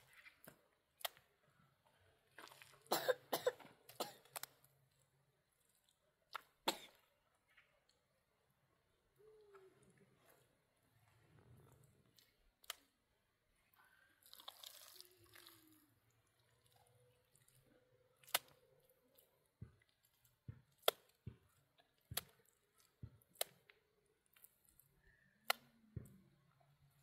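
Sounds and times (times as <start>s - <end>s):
soft mud squelches: 0.0s - 27.0s.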